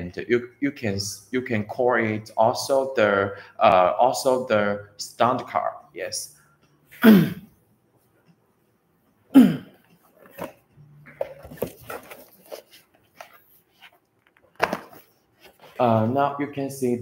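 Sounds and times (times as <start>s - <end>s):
cardboard boxes handled: 10.1s - 15.9s.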